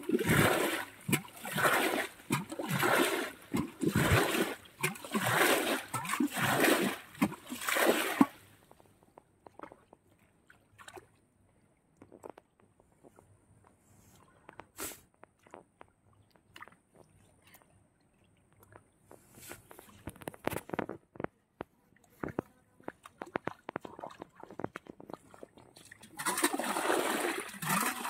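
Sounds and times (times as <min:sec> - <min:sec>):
water splashing: 0:00.0 - 0:08.5, 0:22.9 - 0:28.0.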